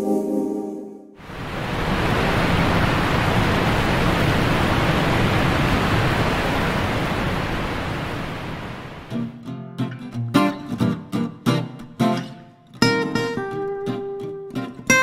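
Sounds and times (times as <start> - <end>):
sea surf rushing: 1.2 - 9.2
acoustic guitar music: 9.1 - 15.0.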